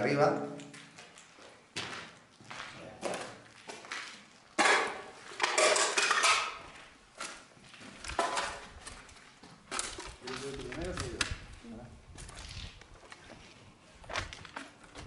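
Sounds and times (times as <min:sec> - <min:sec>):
footsteps: 0:00.2 - 0:15.0
hard objects clattering: 0:04.6 - 0:06.6, 0:07.2 - 0:11.4.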